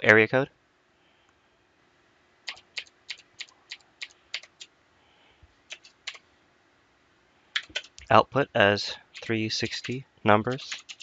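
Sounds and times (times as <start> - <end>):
computer keyboard keystrokes: 2.5 - 4.7, 5.7 - 6.2, 7.6 - 8.1, 9.2 - 11.0.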